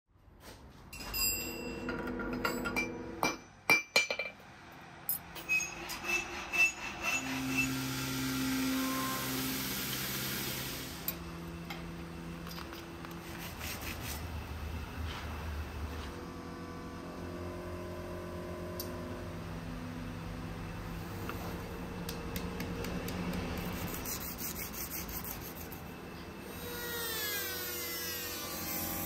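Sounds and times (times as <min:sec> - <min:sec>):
hand file scraping steel rod: 0:23.4 - 0:25.9.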